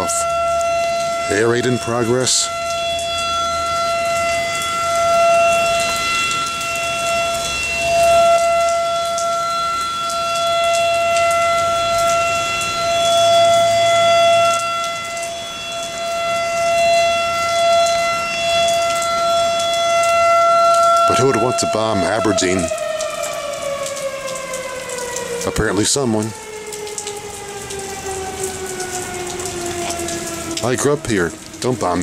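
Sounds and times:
air raid siren wailing: 0.0 - 32.0.

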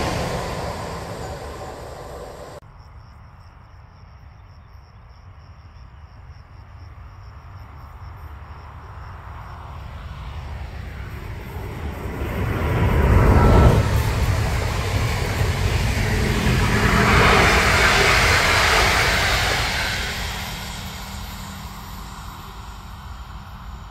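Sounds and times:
distant train rumbling: 0.0 - 2.6, 10.4 - 23.9
passing train: 0.0 - 2.6, 8.8 - 23.9.

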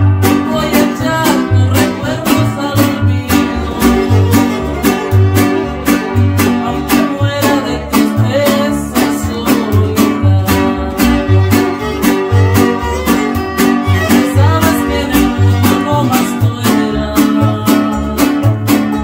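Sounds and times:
bass notes: 0.0 - 19.0
guitars strumming: 0.0 - 19.0
violins playing melody: 3.4 - 6.6, 10.9 - 16.1.

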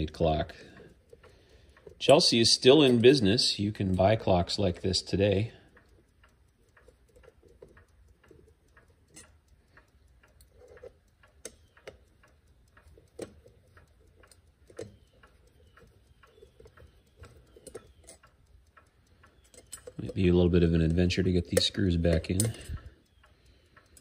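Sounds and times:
faint clock ticking: 0.0 - 24.0
screwdriver clicking and scraping: 10.3 - 12.1, 12.8 - 18.4.

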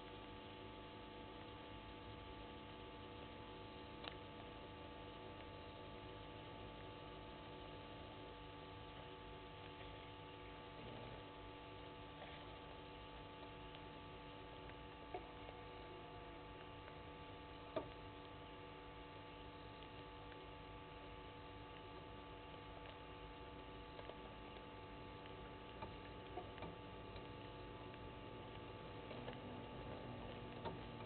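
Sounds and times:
faint electrical hum: 0.0 - 31.0.

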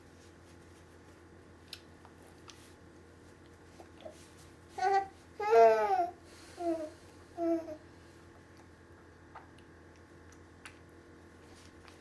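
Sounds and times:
baby babbling: 4.8 - 7.8.

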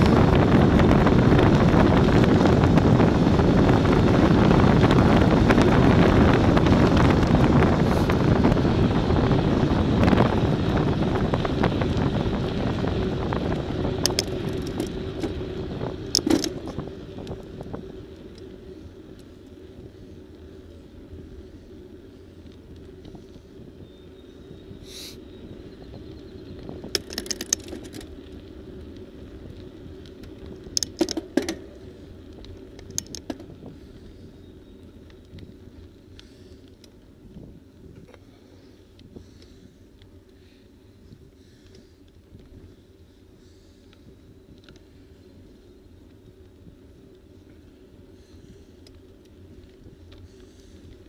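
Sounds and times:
bike rattling clicks: 0.0 - 24.0, 24.8 - 42.8, 43.5 - 51.0
wind rushing over microphone: 0.0 - 40.0
rumbling road noise: 0.0 - 51.0.

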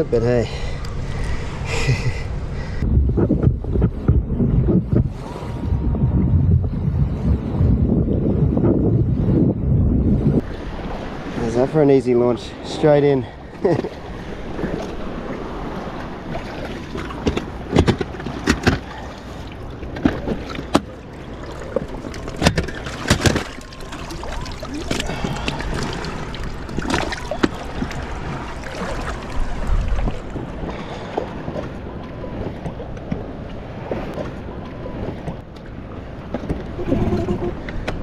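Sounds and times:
shallow water sloshing and splashing: 13.4 - 38.0
knocks and clicks on boat hull: 17.2 - 18.9.

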